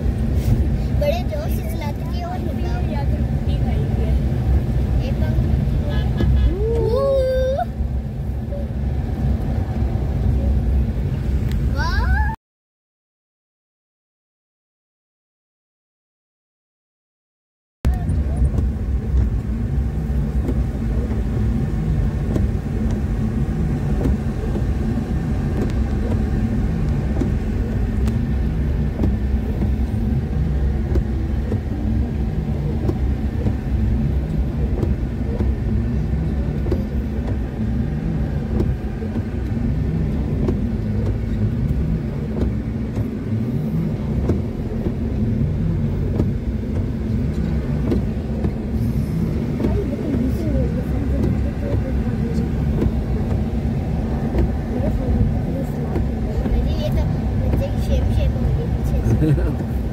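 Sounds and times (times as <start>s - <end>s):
car engine and road rumble: 0.0s - 12.4s, 17.8s - 59.9s.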